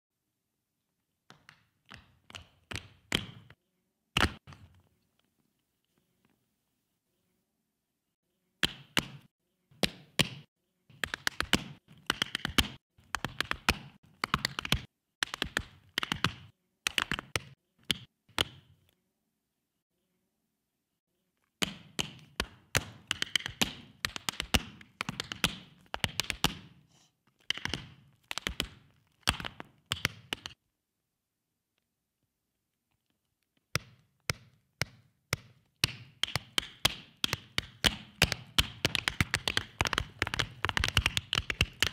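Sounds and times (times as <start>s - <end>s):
tap shoes striking floor: 33.8s - 41.9s.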